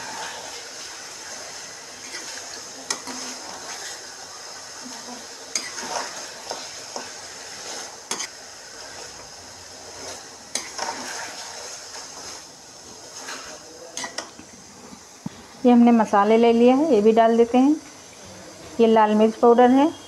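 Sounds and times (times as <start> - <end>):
oil sizzling: 0.0 - 20.0
spatula scraping metal pan: 10.0 - 12.4.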